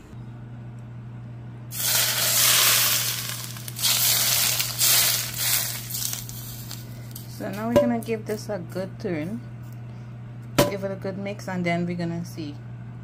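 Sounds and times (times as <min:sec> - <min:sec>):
hot oil sizzling: 0:01.7 - 0:06.9.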